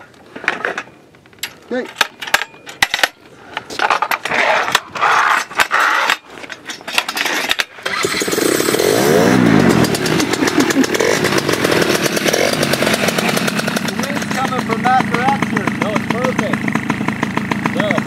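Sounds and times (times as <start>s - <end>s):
paramotor engine revving: 7.8s - 18.0s.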